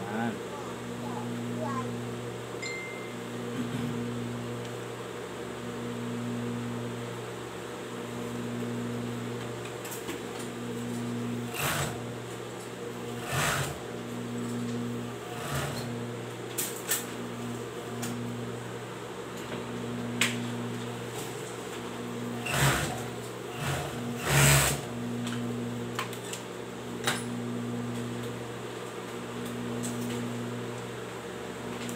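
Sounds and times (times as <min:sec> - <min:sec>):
sewing machine motor hum: 0:10.3 - 0:18.6, 0:19.6 - 0:26.3.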